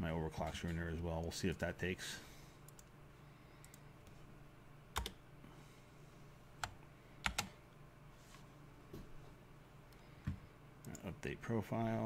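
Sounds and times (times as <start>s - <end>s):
faint low hum: 0.0s - 12.0s
keyboard and mouse clicks: 5.0s - 5.2s.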